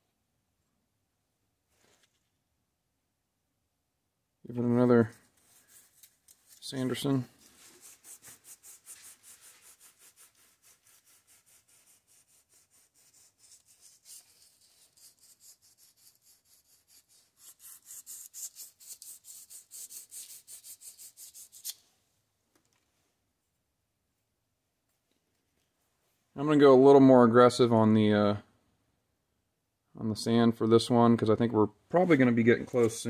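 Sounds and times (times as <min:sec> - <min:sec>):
sandpaper rasping on metal: 0:05.4 - 0:21.8.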